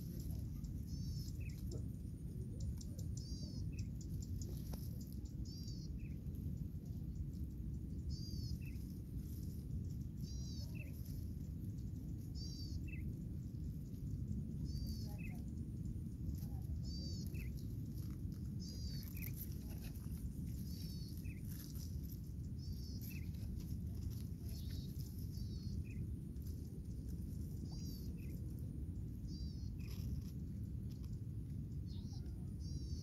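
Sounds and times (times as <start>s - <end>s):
steady low rumble: 0.0s - 33.0s.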